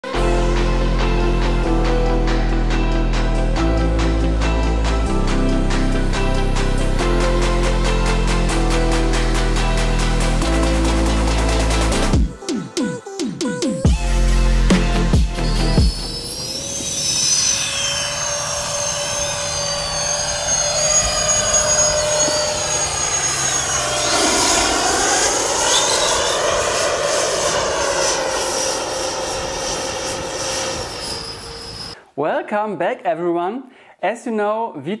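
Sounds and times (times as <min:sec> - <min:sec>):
model jet fans whining: 0:16.1 - 0:32.0.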